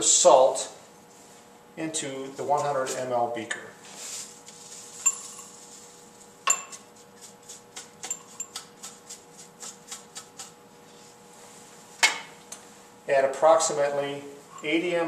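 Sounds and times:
metal spatula clinking on glass beaker: 5.0 - 5.5, 6.5 - 6.8.

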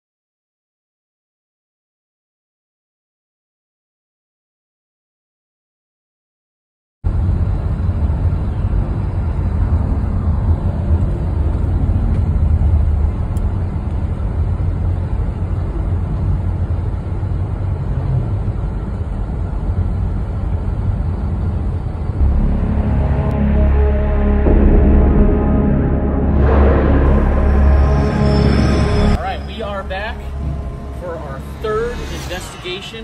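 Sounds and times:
car driving heard from cabin: 7.1 - 24.5
music: 22.2 - 33.0.

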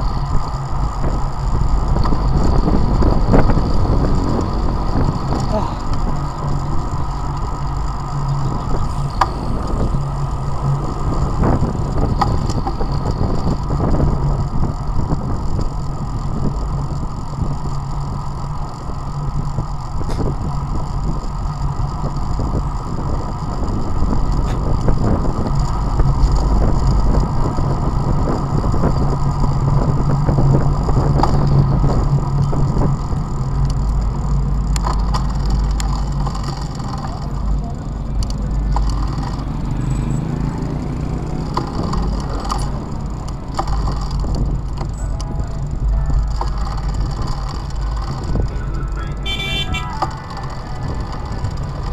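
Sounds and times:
wind rush: 0.0 - 17.7, 39.3 - 51.9
bicycle tyre rumble on asphalt: 0.0 - 51.9.

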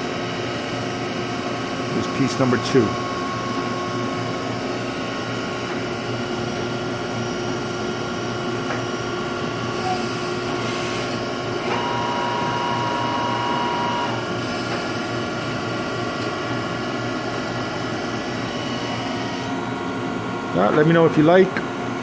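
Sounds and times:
milling machine cutting steel: 9.8 - 14.2
thin whine: 11.6 - 14.3.

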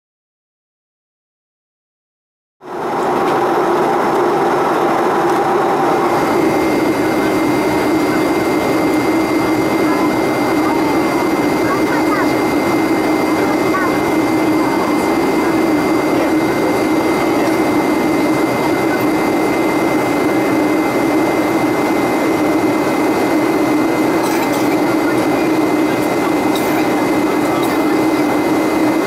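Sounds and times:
jet engine drone: 2.6 - 29.0.

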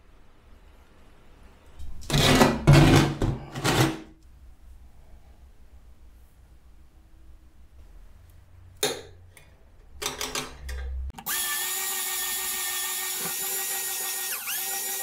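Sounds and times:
electric drill whining: 11.2 - 15.0.

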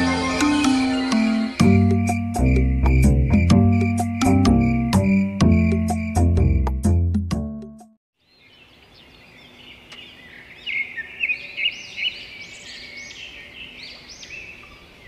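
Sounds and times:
birds chirping: 8.2 - 15.0.

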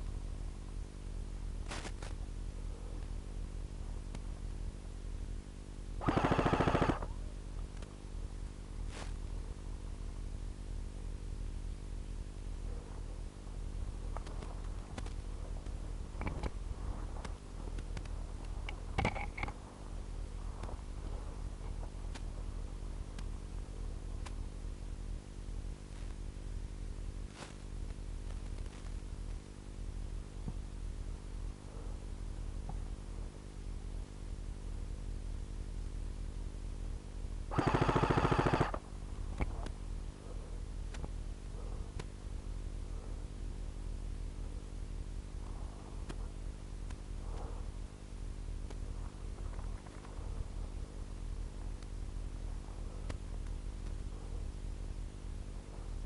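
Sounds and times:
steady low hum: 0.0 - 56.0
airsoft rifle full-auto burst: 6.0 - 7.1, 37.5 - 38.8
sharp clicks: 6.0 - 7.1, 37.5 - 38.8.

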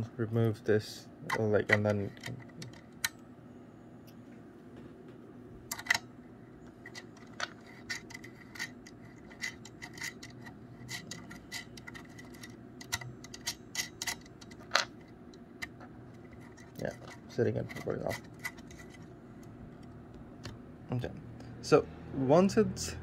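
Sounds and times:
faint steady hum: 0.0 - 23.0
clicks and scrapes of metal connector: 6.8 - 20.0.

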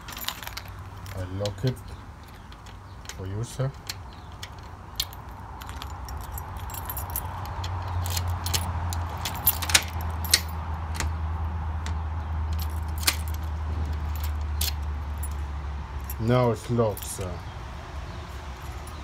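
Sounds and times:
keys jangling: 0.0 - 11.1, 12.5 - 16.3, 18.4 - 19.0.

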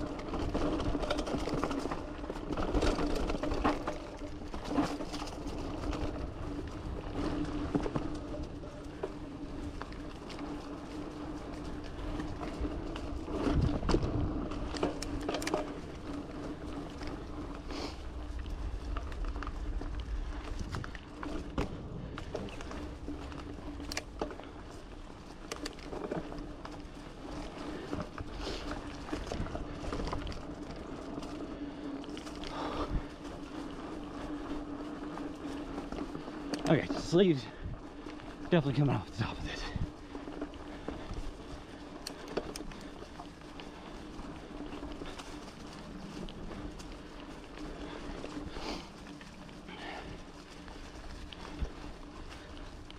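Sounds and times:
bike clattering over bumps: 0.0 - 38.4
bike wheels whirring: 0.0 - 52.9.

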